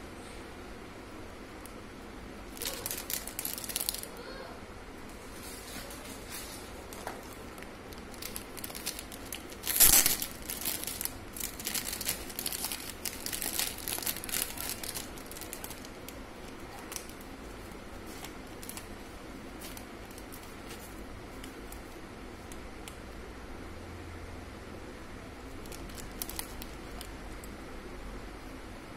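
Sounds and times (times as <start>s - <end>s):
plastic packaging crinkling: 2.4s - 4.1s, 5.2s - 22.0s, 25.5s - 27.5s.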